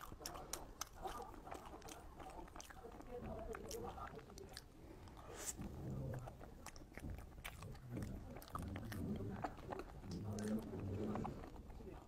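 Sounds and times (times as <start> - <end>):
wet mouth clicks and smacks: 0.0 - 2.9
chewing soft food: 0.0 - 12.0.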